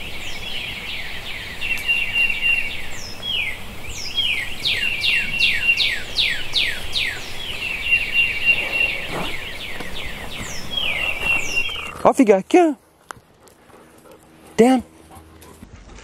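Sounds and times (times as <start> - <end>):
high bird trill: 0.9 - 12.1
bird whistles sweeping downward: 4.2 - 11.9.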